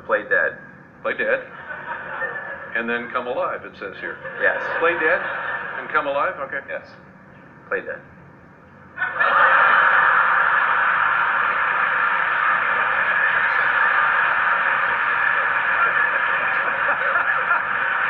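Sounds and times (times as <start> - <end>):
audience laughing: 1.5 - 3.1, 4.1 - 6.2, 9.0 - 18.0
studio audience applauding: 9.1 - 18.0.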